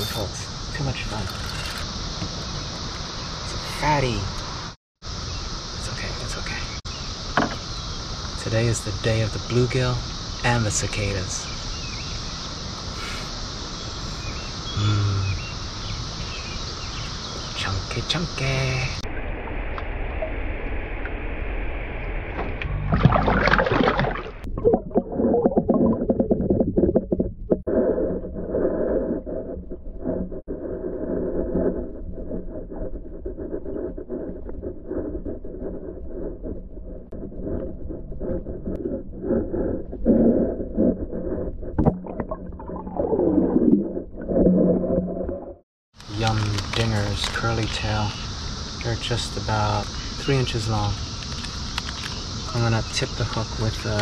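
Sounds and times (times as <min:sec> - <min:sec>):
falling moan: 0:14.8 - 0:15.4
water sloshing and gurgling: 0:22.3 - 0:30.5, 0:37.1 - 0:45.6
water sloshing and splashing: 0:22.4 - 0:27.6
underwater bubbling and clicking: 0:22.6 - 0:27.7, 0:41.8 - 0:45.5.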